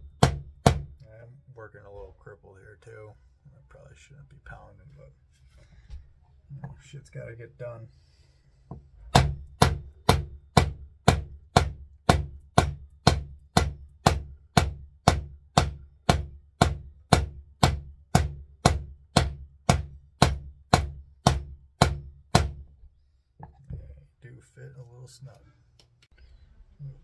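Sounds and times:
hammer striking metal: 0.1s - 0.9s, 9.1s - 22.6s.

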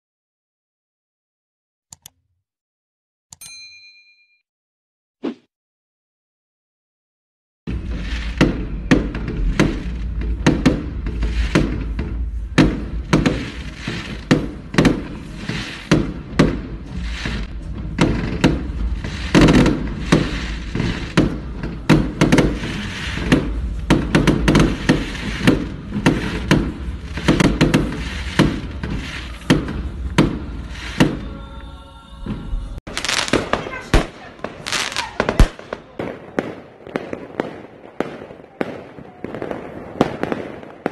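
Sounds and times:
fireworks bangs and crackles: 7.7s - 31.6s, 32.2s - 40.9s
low rumble: 7.7s - 32.8s.

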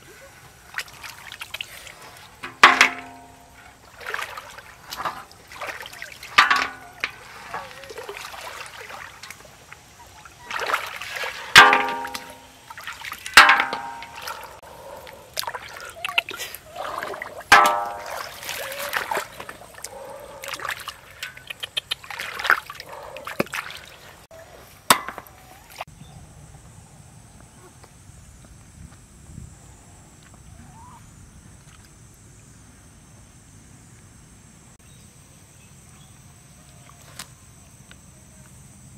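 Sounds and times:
hands splashing in shallow water: 0.7s - 14.6s, 15.4s - 24.2s
snails clanking into metal basin: 6.3s - 7.6s, 13.2s - 14.4s.

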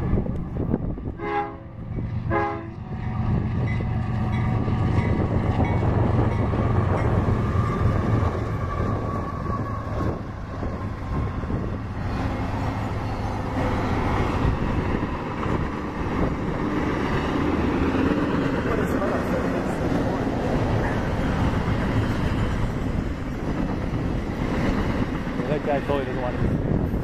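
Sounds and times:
diesel locomotive engine drone: 0.0s - 27.0s
train wheels rumbling on rail: 0.0s - 27.0s
train horn: 1.2s - 2.9s.

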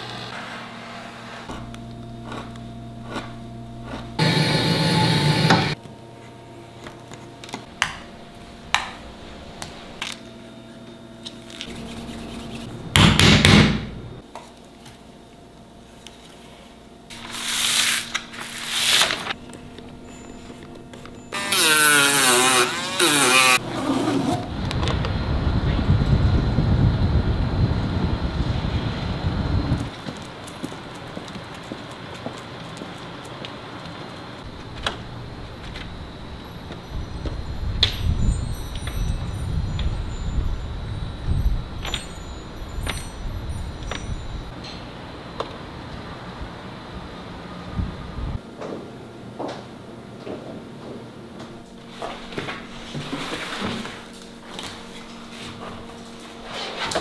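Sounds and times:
steady outdoor noise: 24.3s - 49.6s.

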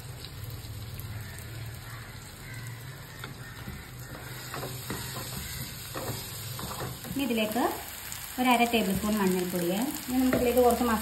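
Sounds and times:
vegetables sizzling in oil: 0.0s - 11.0s
spatula scraping a pan: 3.2s - 7.2s.

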